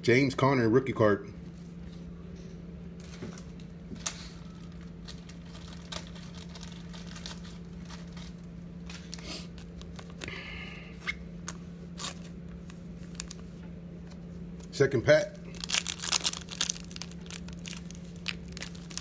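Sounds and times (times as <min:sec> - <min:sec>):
steady low hum: 0:00.0 - 0:19.0
plastic and foil crinkling: 0:03.0 - 0:10.5, 0:11.9 - 0:13.6, 0:14.6 - 0:19.0.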